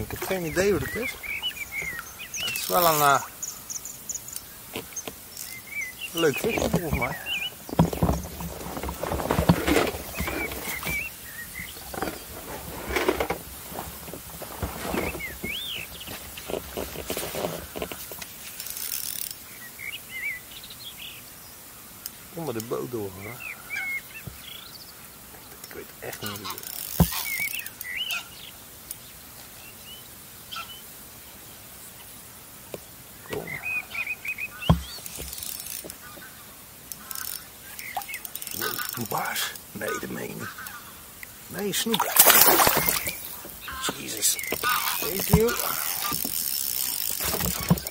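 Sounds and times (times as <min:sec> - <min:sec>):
fishing rod and reel rustling: 0:00.0 - 0:19.5, 0:25.6 - 0:27.9, 0:34.4 - 0:47.9
bird chirps: 0:00.1 - 0:08.2, 0:26.2 - 0:28.6, 0:33.2 - 0:46.3.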